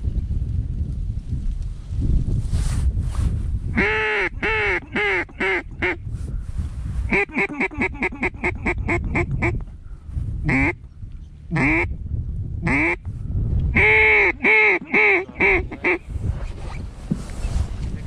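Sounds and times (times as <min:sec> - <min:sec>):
duck call quacks: 0:03.8 - 0:06.0, 0:07.1 - 0:09.6, 0:10.5 - 0:10.8, 0:11.5 - 0:11.9, 0:12.7 - 0:13.0, 0:13.8 - 0:16.0.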